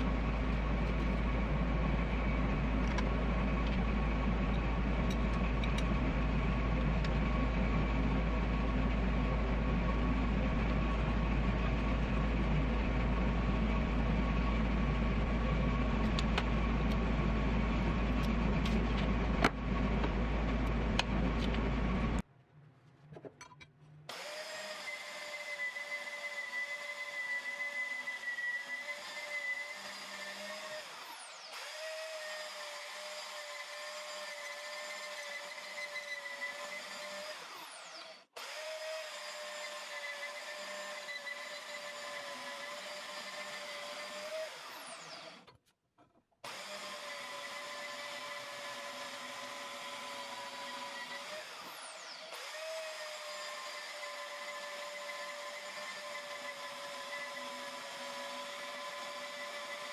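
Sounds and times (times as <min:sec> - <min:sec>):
band saw cutting steel: 0:24.1 - 0:45.5, 0:46.4 - 0:59.9.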